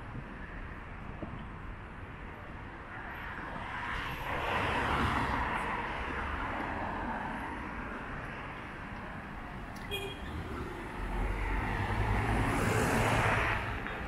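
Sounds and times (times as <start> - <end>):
city street traffic: 0.0 - 14.0
vehicle passing: 10.3 - 13.9.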